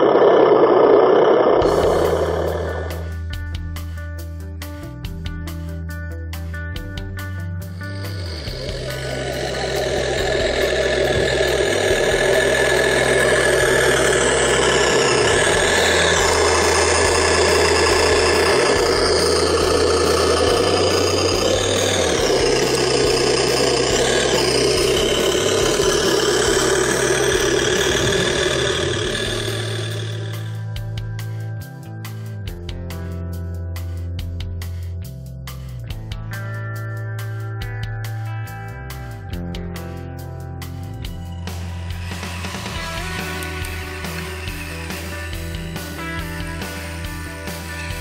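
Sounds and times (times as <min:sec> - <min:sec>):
simulated tractor engine from speaker: 0:00.0 - 0:03.6, 0:07.3 - 0:33.2, 0:40.9 - 0:48.0.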